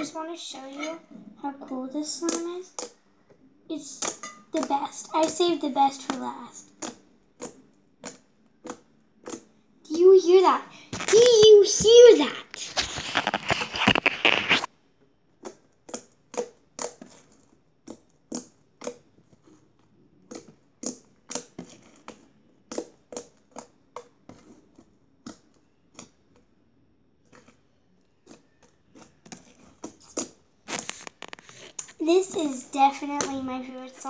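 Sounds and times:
slime crackling and popping: 10.8s - 14.7s, 15.4s - 34.0s
handling rustle: 11.0s - 14.7s, 29.5s - 34.0s.

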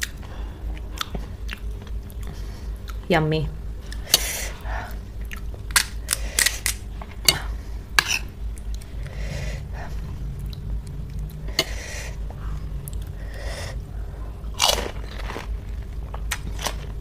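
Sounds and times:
soft chewing: 0.0s - 3.1s, 3.8s - 6.2s, 7.0s - 17.0s
crisp shells crunching: 14.5s - 17.0s.

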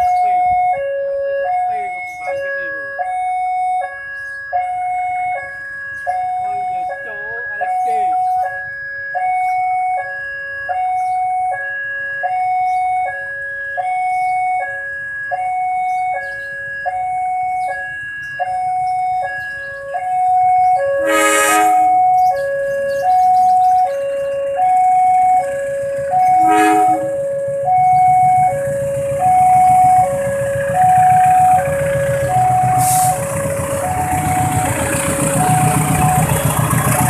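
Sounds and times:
level crossing warning bell: 0.0s - 37.0s
rail noise: 15.8s - 37.0s
train engine rumble: 17.0s - 37.0s
locomotive horn: 20.0s - 22.3s, 26.2s - 37.0s.

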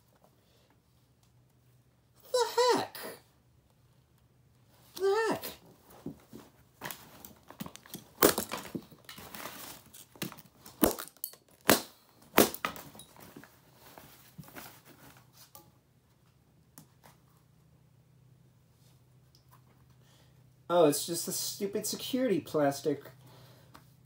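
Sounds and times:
plastic parts cracking and snapping: 6.8s - 12.9s.

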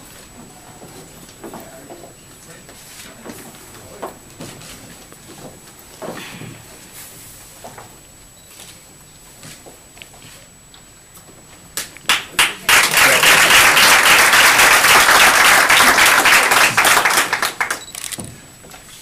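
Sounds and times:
audience applauding: 12.1s - 17.9s.

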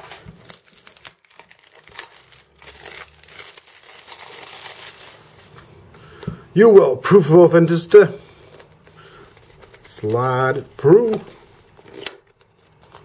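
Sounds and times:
cellophane crinkling and tearing: 0.0s - 5.6s, 8.5s - 13.0s.

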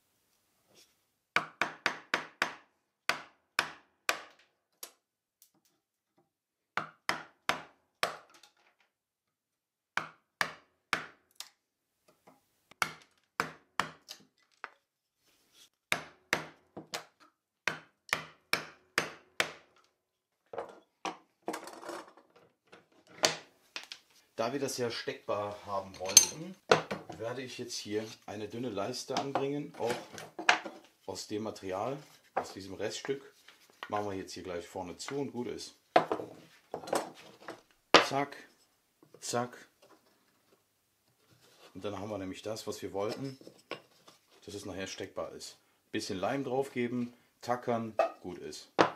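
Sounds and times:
hammer striking chisel: 1.4s - 4.4s, 15.9s - 17.1s, 17.7s - 19.6s.

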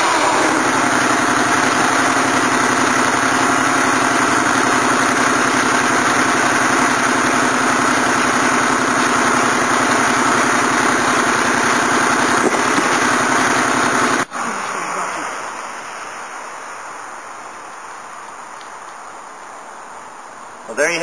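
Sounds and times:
saw cutting wood: 0.0s - 14.3s
sawmill engine under load: 0.0s - 15.6s.

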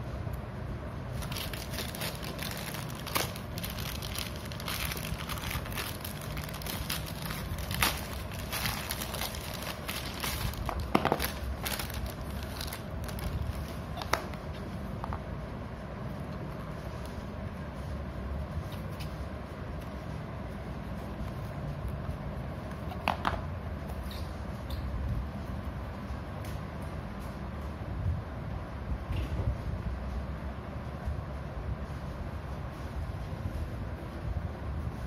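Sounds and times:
low steady hum: 0.0s - 35.0s
plastic bag crinkling and ripping: 1.2s - 14.3s.

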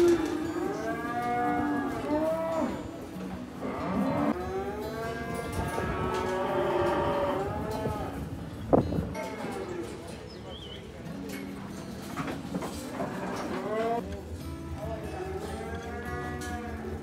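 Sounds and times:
livestock calling: 0.0s - 3.0s.

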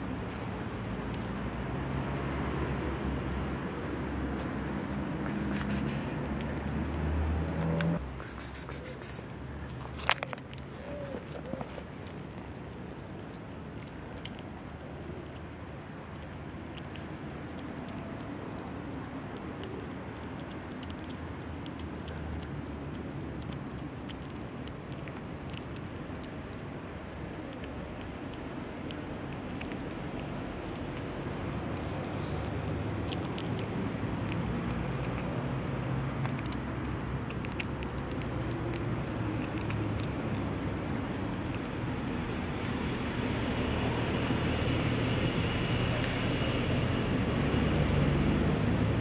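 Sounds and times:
kitten chewing and lapping food: 0.0s - 49.0s
road traffic rumble: 0.0s - 49.0s.

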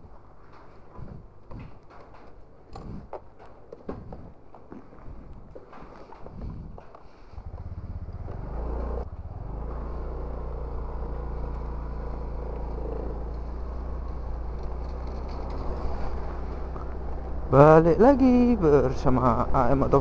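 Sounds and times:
motorcycle engine: 6.0s - 20.0s.

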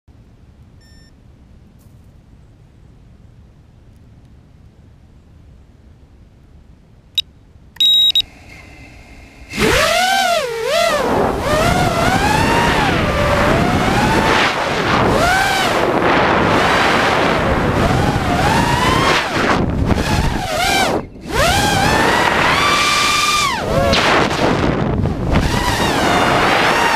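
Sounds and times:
short loud beep: 0.8s - 1.1s, 7.8s - 8.3s
quadcopter motors whining: 9.5s - 26.9s.

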